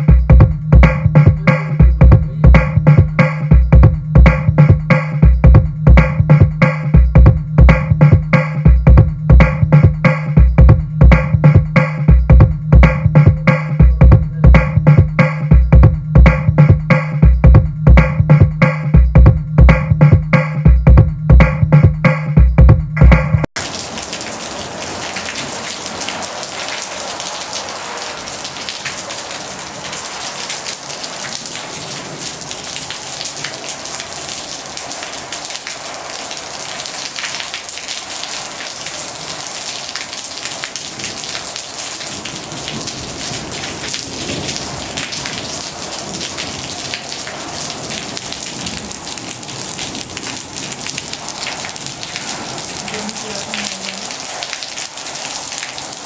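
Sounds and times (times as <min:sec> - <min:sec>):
rain on hard surfaces: 0:00.0 - 0:01.8, 0:23.5 - 0:56.0.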